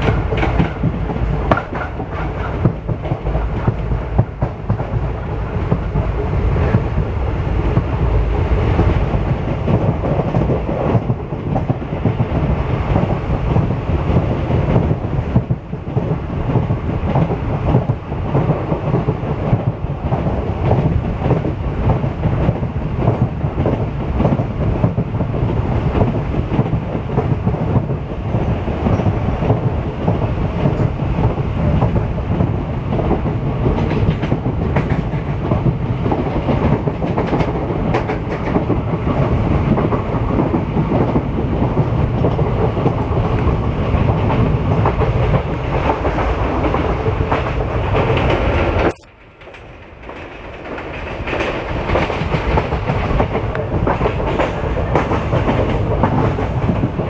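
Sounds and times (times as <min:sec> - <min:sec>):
wheels clattering over rail joints: 0:00.0 - 0:06.2
train rumbling on track: 0:00.0 - 0:57.0.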